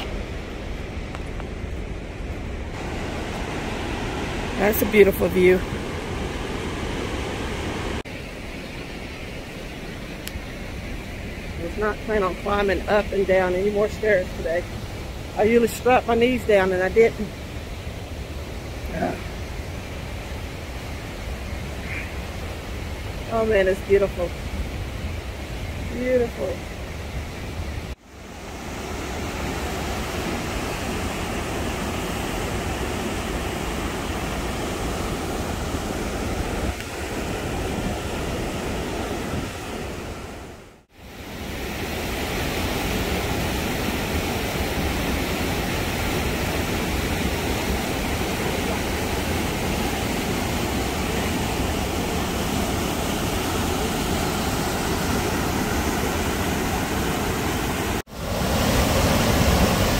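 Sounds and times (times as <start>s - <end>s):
whitewater rapids rushing: 2.8s - 8.0s, 41.8s - 59.9s.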